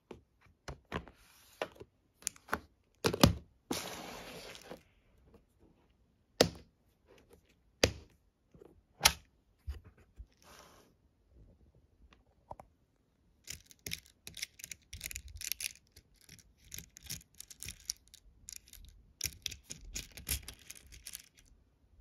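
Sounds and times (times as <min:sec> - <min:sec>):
plastic beads clicking and rattling: 0:13.4 - 0:21.5.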